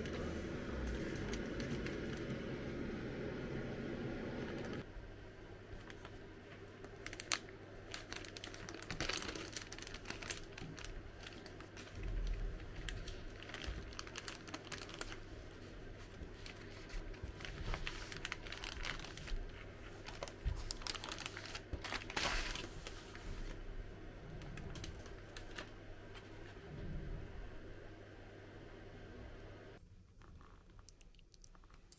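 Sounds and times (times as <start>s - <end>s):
plastic packaging crinkling: 6.8s - 23.2s.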